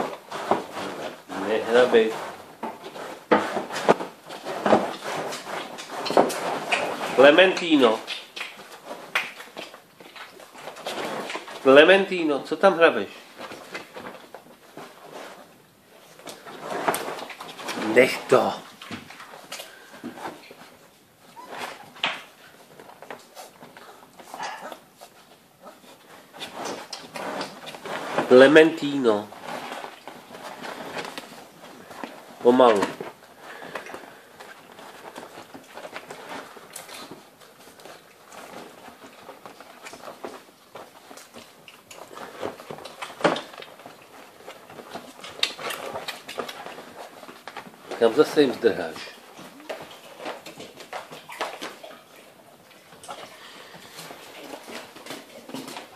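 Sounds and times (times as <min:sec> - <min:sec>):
puppies scuffling: 0:00.0 - 0:55.9
puppies suckling wet smacking: 0:49.3 - 0:55.8.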